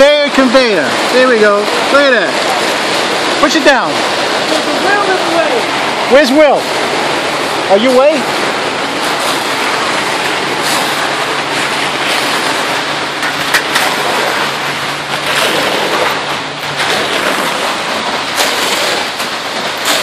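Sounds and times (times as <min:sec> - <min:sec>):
wet concrete rushing down metal chute: 0:00.0 - 0:20.0.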